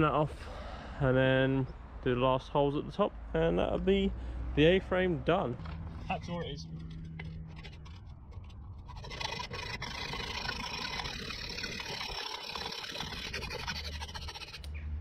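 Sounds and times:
low background rumble: 0.0 - 15.0
hacksaw cutting metal: 6.1 - 14.7.

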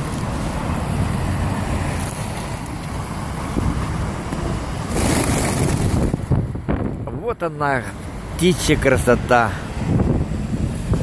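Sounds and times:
street traffic rumble: 0.0 - 11.0
wind on microphone: 3.5 - 7.3, 9.7 - 11.0
pigeons flapping wings: 4.9 - 6.2.

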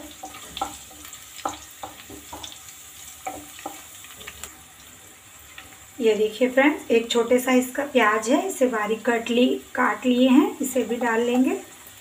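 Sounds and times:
spatula scraping a pan: 0.0 - 4.5
food sizzling in hot oil: 0.0 - 12.0.

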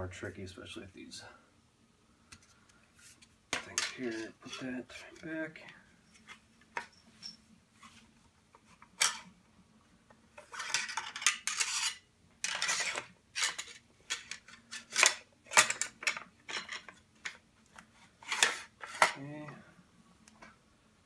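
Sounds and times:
metal parts sliding and scraping: 3.0 - 5.3, 6.0 - 8.0, 10.4 - 19.2.

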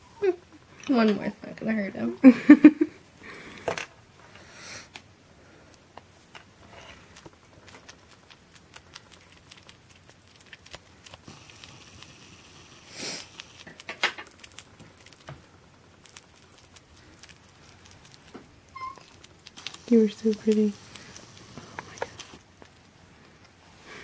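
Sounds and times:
small animal chewing: 4.9 - 23.9
person's voice: 19.9 - 20.8.

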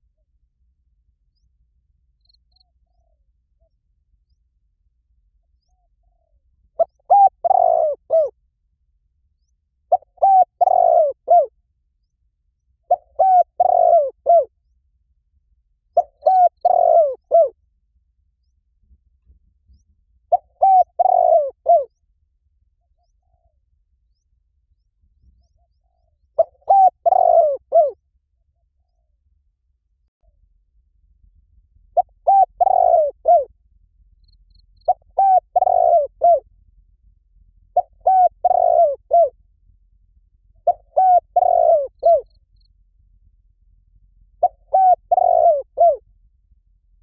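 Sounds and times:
dove cooing: 5.6 - 8.4, 9.9 - 11.5, 12.9 - 14.5, 16.0 - 17.6, 20.3 - 21.9, 25.6 - 28.0, 32.0 - 33.5, 34.9 - 36.4, 37.7 - 39.4, 40.6 - 42.3, 44.4 - 46.0.

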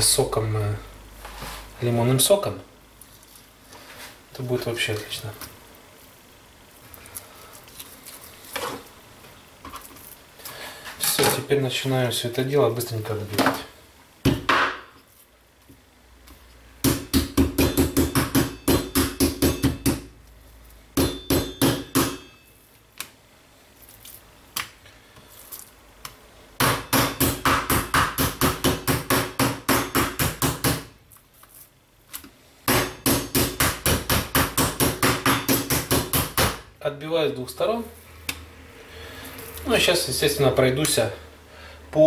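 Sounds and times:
meat mallet pounding on cutting board: 16.8 - 20.1, 21.0 - 22.2, 26.6 - 30.9, 32.7 - 36.6.

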